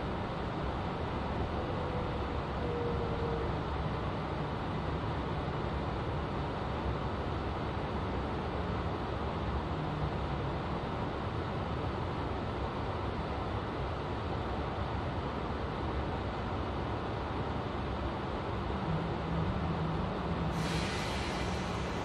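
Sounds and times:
train wheels rumbling on rails: 18.4 - 22.0.

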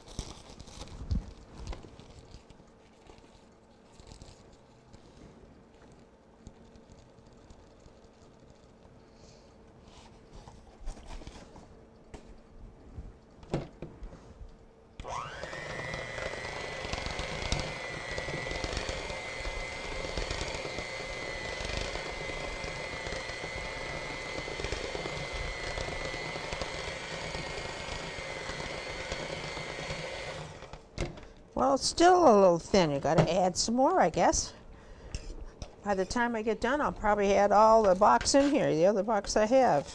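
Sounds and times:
electric hand mixer whining: 15.0 - 30.8.

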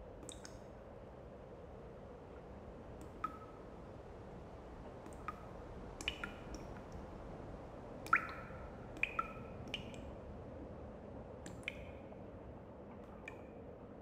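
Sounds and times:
water drops plinking into a pool: 0.2 - 0.6, 3.0 - 3.7, 5.0 - 7.0, 8.0 - 10.1, 11.4 - 12.0, 13.0 - 13.6.

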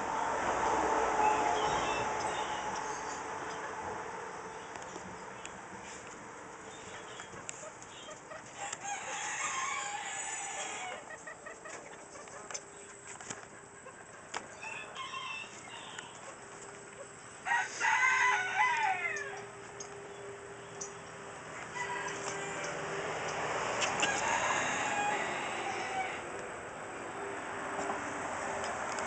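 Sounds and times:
rooster crowing: 8.6 - 11.1, 14.5 - 16.2, 17.4 - 19.6, 21.5 - 23.1, 23.9 - 26.4.

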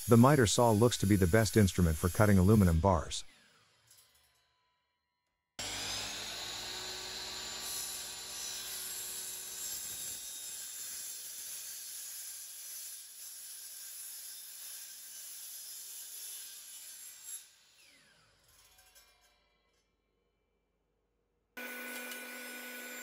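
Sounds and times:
saw motor hum: 5.6 - 10.0, 21.6 - 23.0
saw blade screeching through metal: 5.6 - 19.5.

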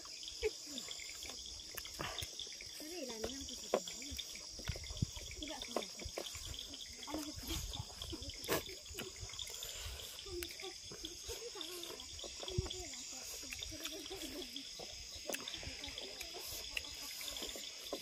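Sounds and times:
insects chirping: 0.0 - 18.0
chewing and lip smacks: 1.1 - 2.5.

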